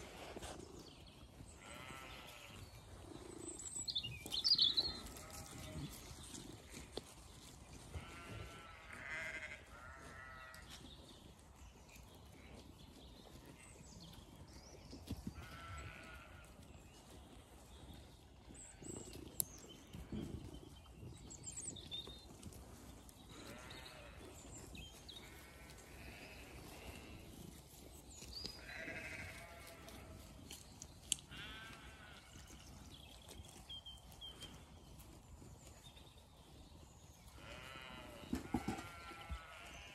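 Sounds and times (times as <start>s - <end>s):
sheep bleating: 1.6s - 2.6s, 4.6s - 6.0s, 7.9s - 10.7s, 15.4s - 16.6s, 23.3s - 24.3s, 25.2s - 27.3s, 28.6s - 30.3s, 31.0s - 32.5s, 37.3s - 39.9s.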